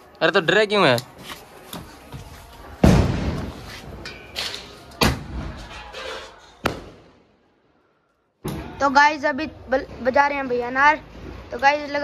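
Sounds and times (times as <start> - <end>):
firework bangs: 2.8 - 3.7, 6.6 - 7.3.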